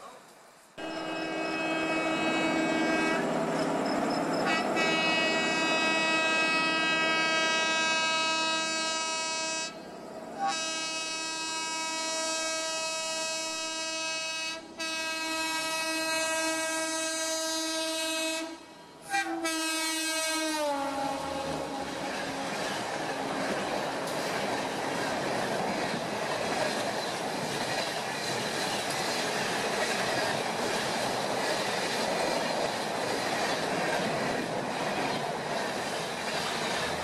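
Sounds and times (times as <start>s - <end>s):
train approaching: 0.0s - 37.0s
locomotive air horn blasts: 0.8s - 3.4s, 4.4s - 9.8s, 10.4s - 23.4s.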